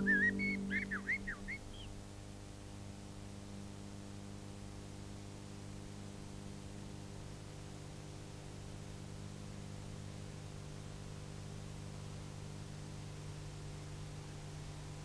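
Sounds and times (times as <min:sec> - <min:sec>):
whistled note: 0:00.0 - 0:01.6
mains hum with hiss: 0:00.0 - 0:15.0.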